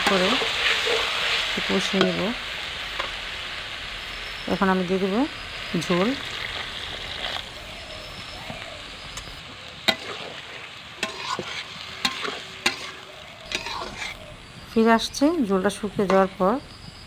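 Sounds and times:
metal spatula scraping pan: 0.0s - 2.3s, 9.9s - 14.3s
water sizzling in hot pan: 0.0s - 17.0s.

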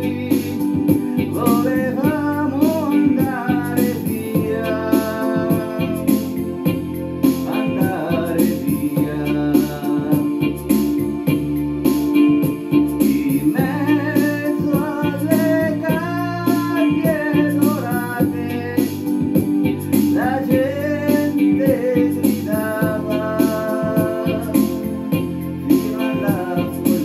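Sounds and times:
person singing: 0.0s - 11.4s, 12.4s - 27.0s
band with steady beat: 0.0s - 27.0s.

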